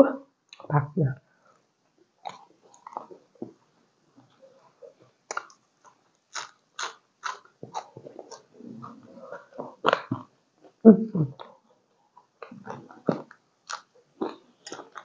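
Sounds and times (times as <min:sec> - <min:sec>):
soft mouth sounds: 0:04.3 - 0:15.0
crunchy food crunching: 0:05.2 - 0:10.8, 0:12.4 - 0:15.0.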